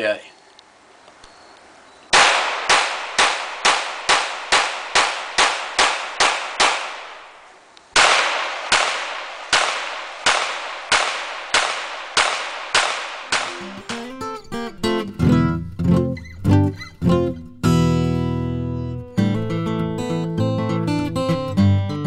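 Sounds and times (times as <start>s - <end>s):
pistol shots with echo: 2.1s - 7.3s, 8.0s - 14.0s.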